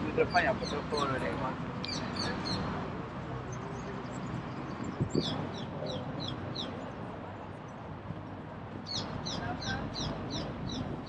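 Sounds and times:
street noise hum: 0.0 - 11.0
bird chirping: 8.9 - 11.0.

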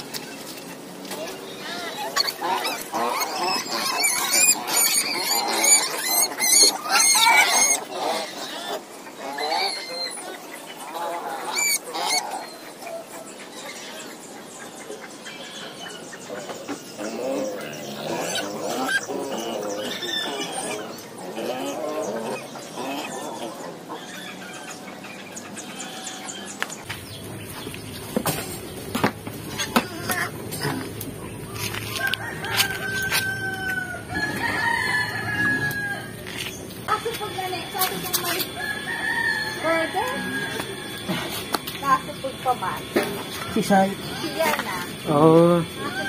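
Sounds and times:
birds chirping: 0.0 - 46.0
wild pig squealing: 1.3 - 14.1, 16.9 - 25.0, 29.5 - 30.9, 31.5 - 36.5, 37.9 - 41.5.

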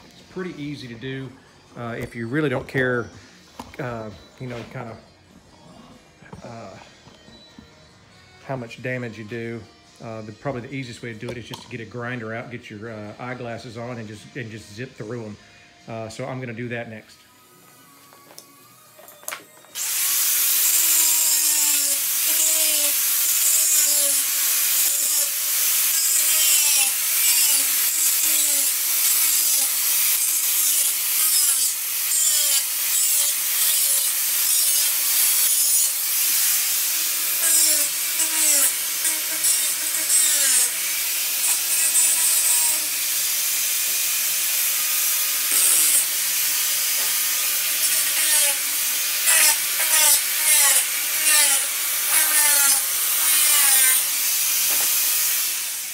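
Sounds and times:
angle grinder cutting metal: 18.8 - 55.9.

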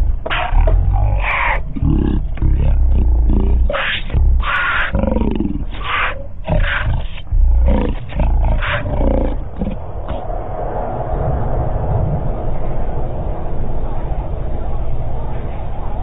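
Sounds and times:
lions growling: 0.2 - 10.2.

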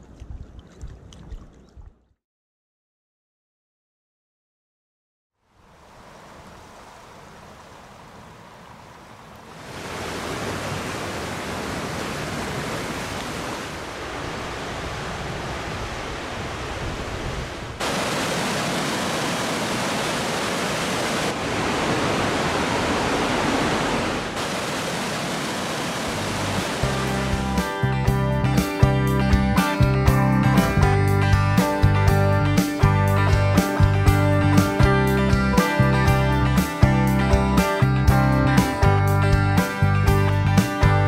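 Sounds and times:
river water rushing: 5.6 - 27.7.

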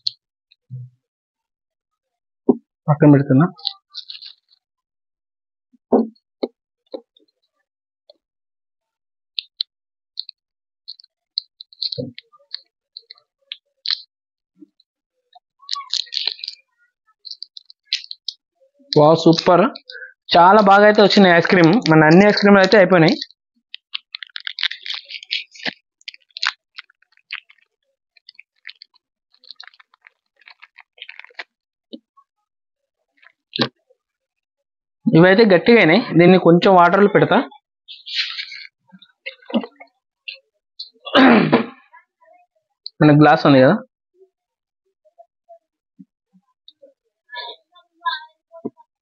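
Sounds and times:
plastic wrapper crinkling: 3.6 - 4.6, 15.6 - 31.5.

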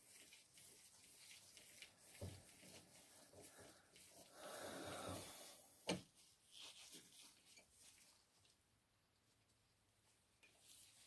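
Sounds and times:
soft rasping hiss: 0.0 - 8.6.

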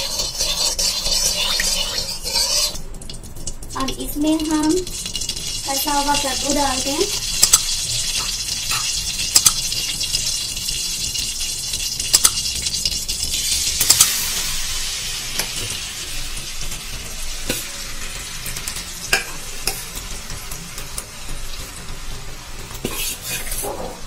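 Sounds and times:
oil sizzling in a pan: 0.0 - 24.0
spatula clicking against pan: 7.4 - 7.7, 9.3 - 9.7, 12.1 - 12.5.

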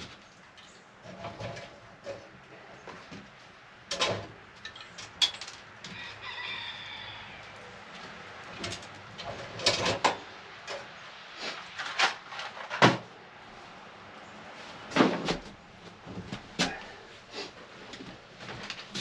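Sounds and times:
metal clanks from a wood stove: 3.9 - 5.6.

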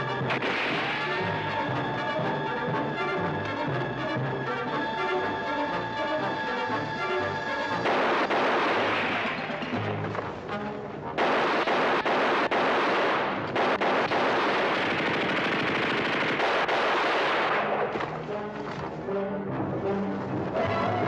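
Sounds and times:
dramatic orchestral music: 0.0 - 14.1, 17.2 - 21.0
rifle shots: 0.3 - 1.5, 7.8 - 10.1, 11.2 - 18.2
machine-gun fire: 7.8 - 9.8, 11.2 - 18.0.

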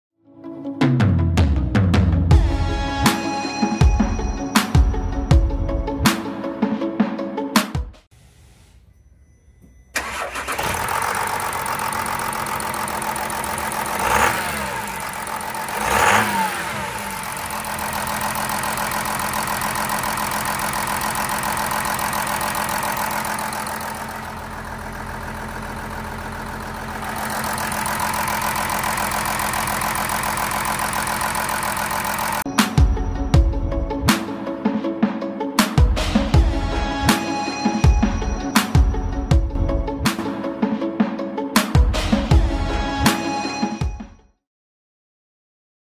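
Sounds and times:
engine idling and revving: 10.0 - 34.3.

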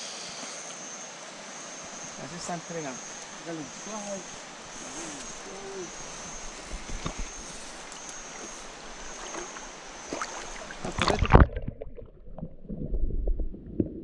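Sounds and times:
river water rushing: 0.0 - 11.4
muffled water sloshing: 4.2 - 14.0
loud water splashing: 9.2 - 12.3.

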